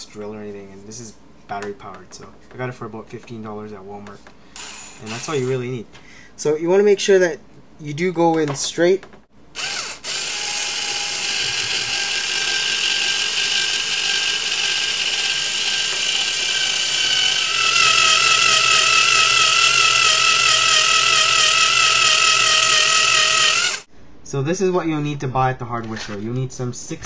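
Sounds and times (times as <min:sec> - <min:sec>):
cordless drill whining: 0:04.6 - 0:05.6, 0:09.6 - 0:23.9.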